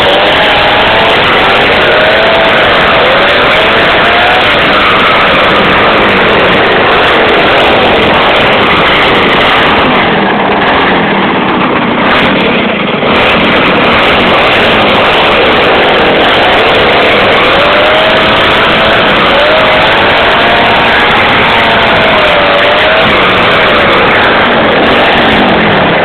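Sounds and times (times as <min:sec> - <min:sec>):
two-stroke engine running: 0:00.0 - 0:26.0.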